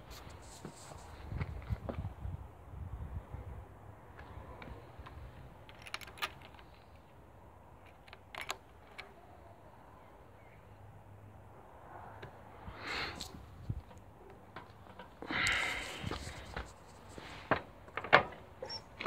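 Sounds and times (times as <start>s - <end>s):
quiet handling noises: 13.2s - 19.0s.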